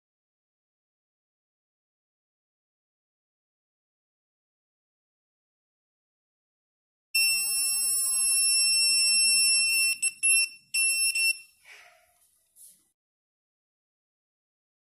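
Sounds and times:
high-pitched alarm buzzer: 7.2 - 11.6.

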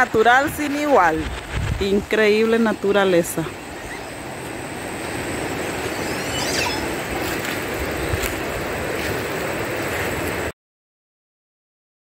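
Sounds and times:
outdoor rushing noise: 0.0 - 10.5
high chirp: 5.5 - 7.2.

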